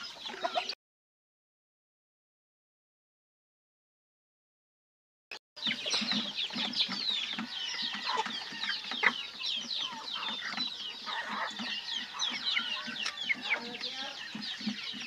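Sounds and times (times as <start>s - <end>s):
chickens clucking: 0.0s - 0.8s, 5.6s - 15.0s
chicks peeping: 0.0s - 0.8s, 5.6s - 15.0s.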